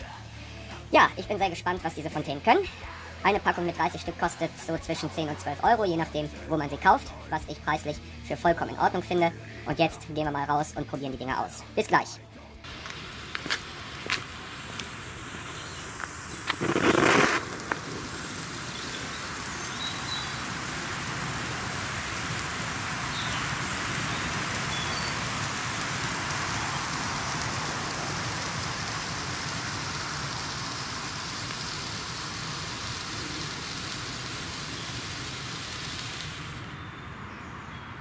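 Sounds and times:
firework fountain hissing: 12.6 - 36.9.

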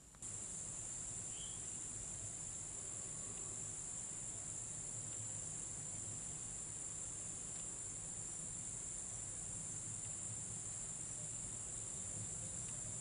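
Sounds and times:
insects chorus droning: 0.1 - 13.0
faint chirp: 1.2 - 1.8.

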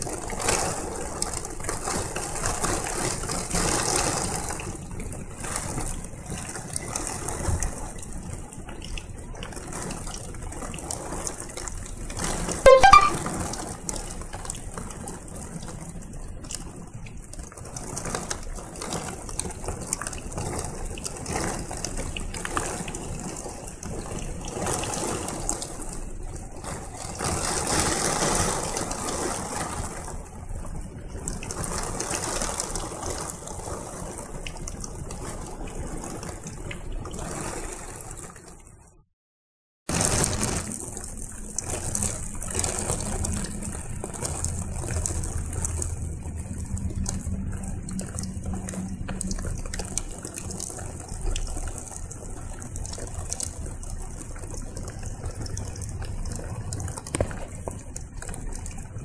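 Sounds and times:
heavy wind-driven rain: 0.0 - 12.6, 13.5 - 38.8, 39.9 - 59.0
low steady hum: 40.9 - 59.0.

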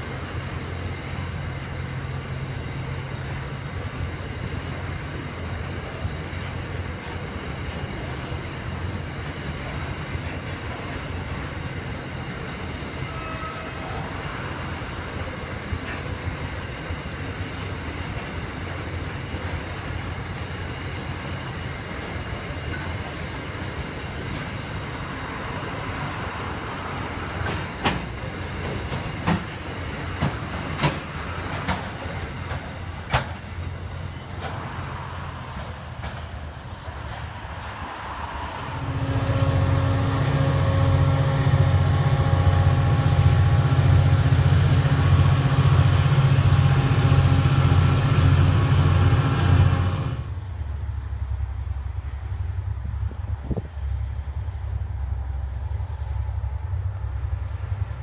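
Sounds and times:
freight wagons rumbling past: 0.0 - 55.0
diesel locomotive engines humming: 0.0 - 58.0
wheels clicking over rail joints: 27.0 - 34.8.

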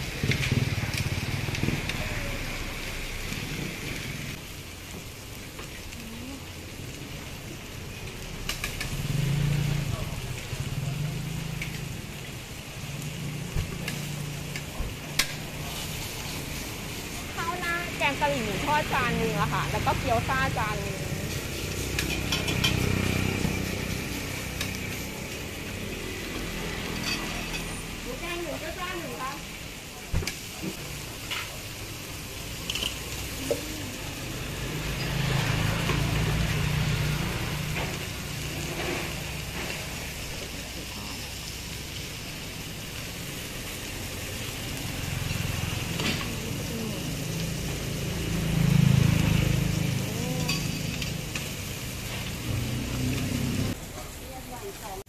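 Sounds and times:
meat sizzling on a griddle: 0.0 - 55.0.

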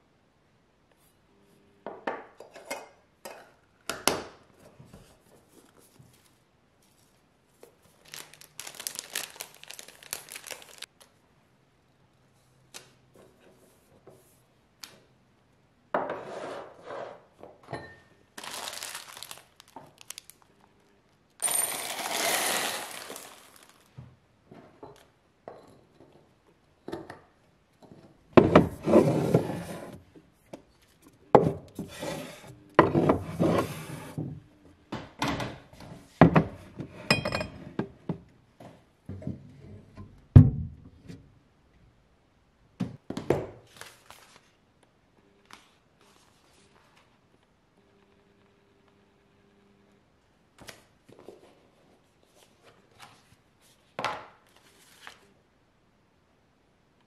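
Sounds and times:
plastic bags crinkling: 7.9 - 11.1, 18.4 - 20.5, 21.4 - 23.9
glass jar and tins clinking: 21.4 - 23.7.

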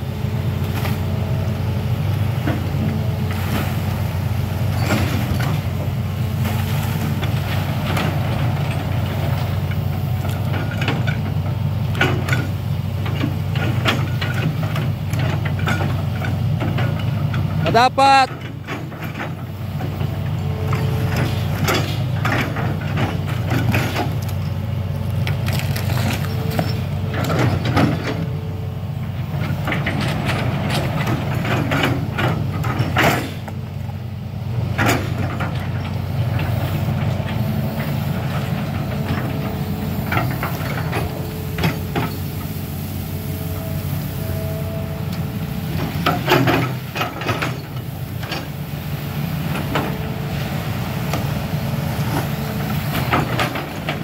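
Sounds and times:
excavator diesel engine running: 0.0 - 54.0
hydraulic whine: 36.4 - 54.0.

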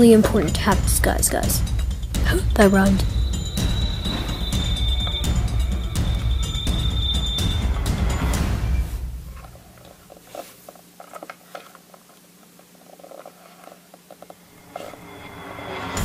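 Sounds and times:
music: 0.0 - 9.9, 14.6 - 16.0
faint steady hum: 0.0 - 16.0.

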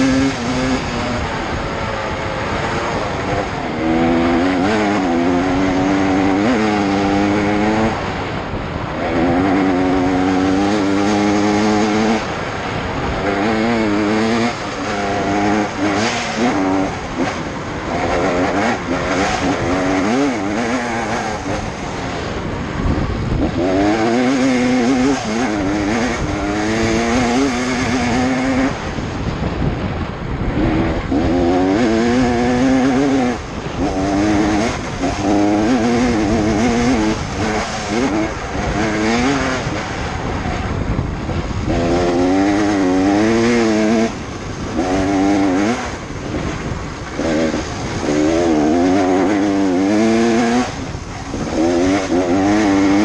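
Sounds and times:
two-stroke motorcycle revving: 0.0 - 53.0.

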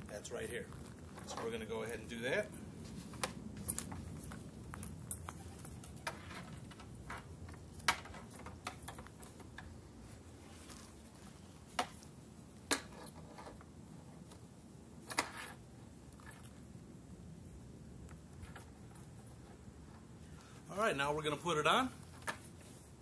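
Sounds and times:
leather rustling: 0.2 - 6.8, 10.0 - 12.6.

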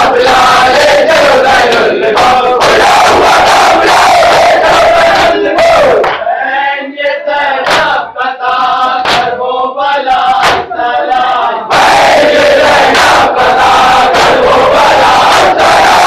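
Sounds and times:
crowd singing chorus: 0.0 - 16.0
lead voice singing: 0.0 - 16.0
chest-beating slaps: 6.0 - 6.3, 7.6 - 8.0, 9.0 - 9.4, 10.4 - 10.7, 14.1 - 14.4.

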